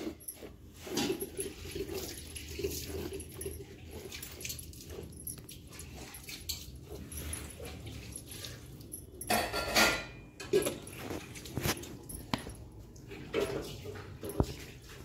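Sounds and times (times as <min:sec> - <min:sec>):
milk squirting into metal pail: 0:00.0 - 0:07.0.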